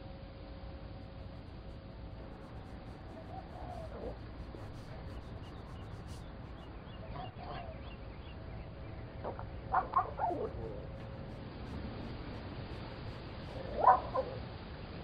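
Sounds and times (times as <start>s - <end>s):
steady low hiss: 0.0s - 15.0s
small dog barking: 9.7s - 11.2s, 13.1s - 14.5s.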